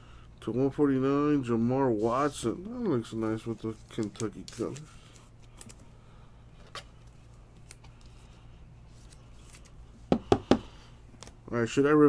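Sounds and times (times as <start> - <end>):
low steady hum: 0.0 - 12.0
trading cards flipped by hand: 3.8 - 5.8, 6.6 - 8.2, 8.9 - 9.8.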